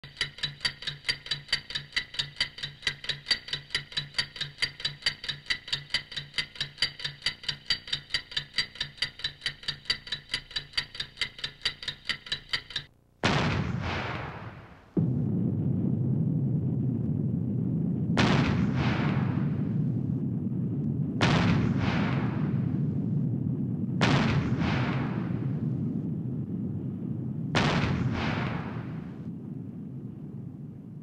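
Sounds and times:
clock-like ticking: 0.0s - 12.9s
loud rushing boom: 13.2s - 30.1s.

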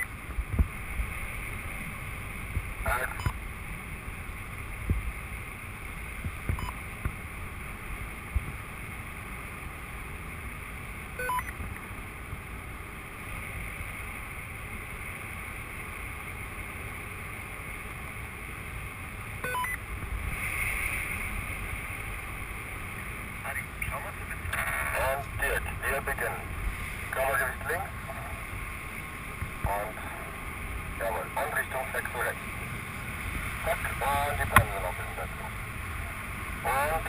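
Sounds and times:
wind rushing over microphone: 0.3s - 2.9s.

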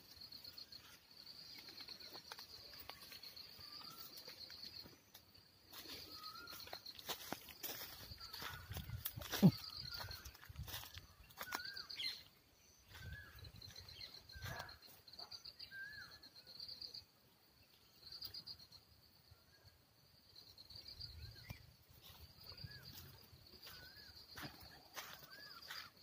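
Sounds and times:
insects trilling: 0.0s - 26.0s.

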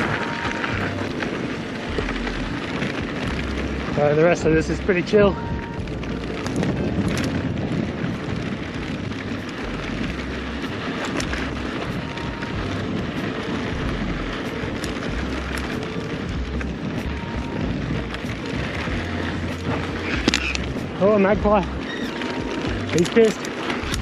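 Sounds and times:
bike clicks and rattles: 0.0s - 24.0s
tyres rolling on dirt: 0.0s - 24.0s
wind rushing over camera: 0.0s - 24.0s.

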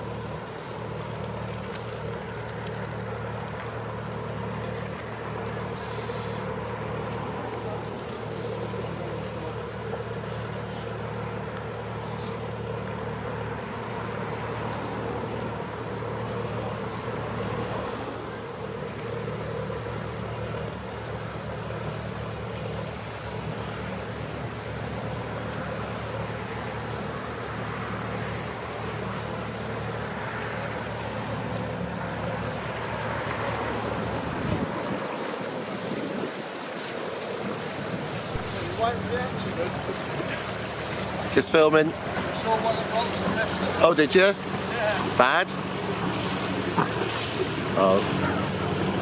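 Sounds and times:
boat engine humming: 0.0s - 49.0s
high bird chirps: 6.6s - 7.3s, 9.6s - 10.3s, 11.8s - 12.9s, 19.8s - 21.2s, 22.4s - 23.2s, 24.6s - 25.4s, 26.9s - 27.5s, 29.0s - 29.7s.

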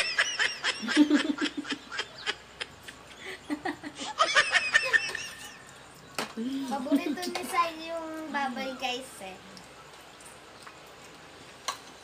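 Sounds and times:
woman laughing: 0.0s - 5.6s.

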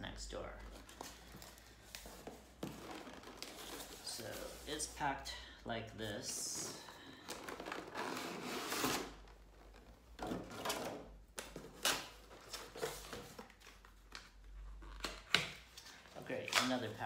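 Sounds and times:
cardboard packaging rustling: 0.6s - 5.0s, 6.1s - 14.4s.

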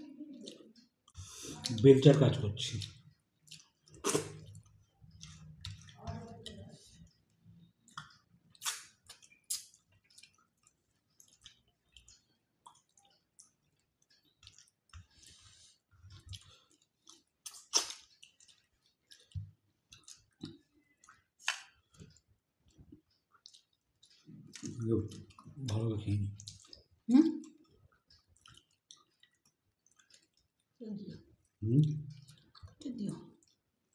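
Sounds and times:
quiet chewing: 0.0s - 33.9s
mouth smacks: 3.5s - 4.7s, 8.0s - 9.8s, 17.4s - 18.3s.

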